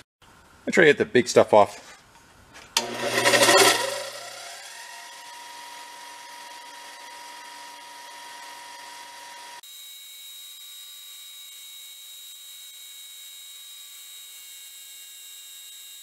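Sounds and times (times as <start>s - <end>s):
bench grinder whining: 2.8s - 9.6s.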